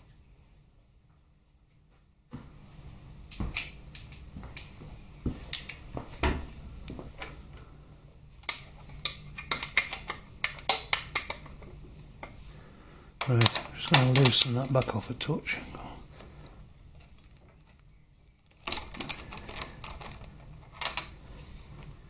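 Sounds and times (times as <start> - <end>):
metal hand tools clinking: 13.2 - 14.9.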